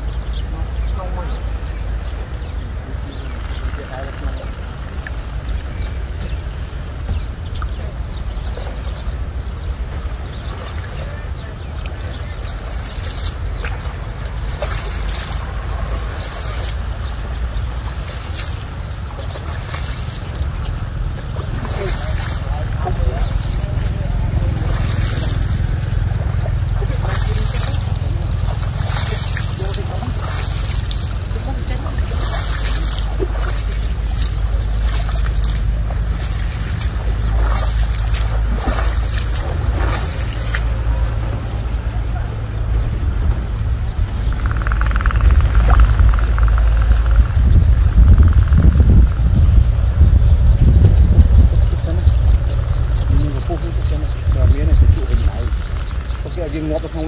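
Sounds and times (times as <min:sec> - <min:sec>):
wind rumbling on microphone: 0:00.0 - 0:57.0
water splashing from wading: 0:08.2 - 0:42.8.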